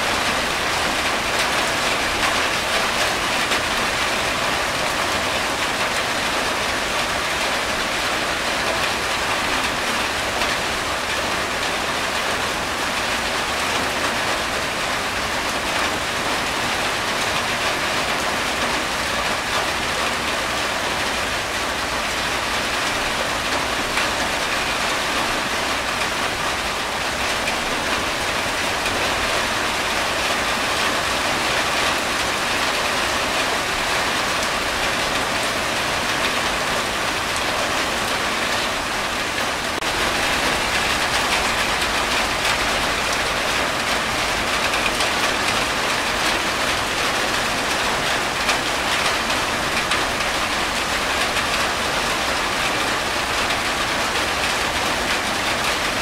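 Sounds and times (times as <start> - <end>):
rain on a tin roof: 0.0 - 56.0
rainwater running off roof: 0.0 - 56.0.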